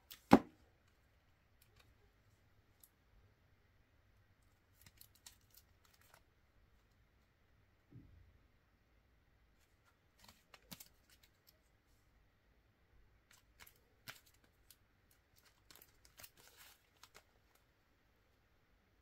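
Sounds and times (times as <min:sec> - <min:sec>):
playing cards snapping and rustling: 0:10.2 - 0:11.4, 0:13.3 - 0:14.6, 0:15.3 - 0:17.3.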